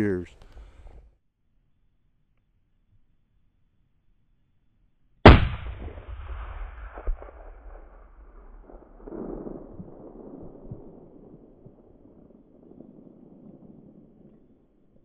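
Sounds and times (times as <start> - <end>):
rifle shot with rolling echo: 5.3 - 15.0.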